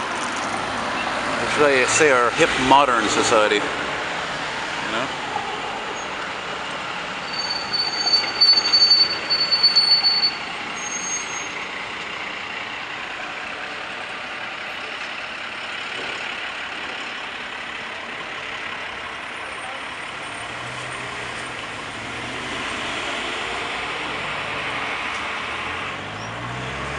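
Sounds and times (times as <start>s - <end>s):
city traffic hum: 0.0s - 26.9s
truck brakes squealing: 7.2s - 11.8s.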